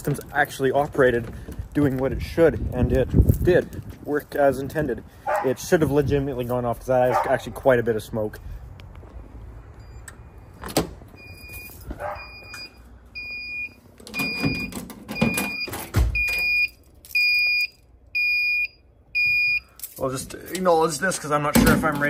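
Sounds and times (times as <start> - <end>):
alarm panel buzzer beeping: 11.2 - 19.7.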